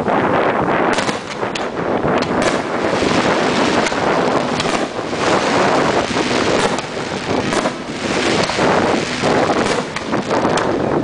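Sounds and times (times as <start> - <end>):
wind buffeting microphone: 0.0 - 11.0
distant fireworks popping: 0.9 - 11.0.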